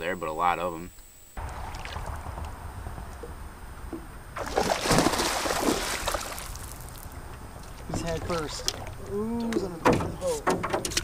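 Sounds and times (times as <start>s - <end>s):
fish splashing and thrashing: 1.4s - 2.7s, 4.4s - 9.1s.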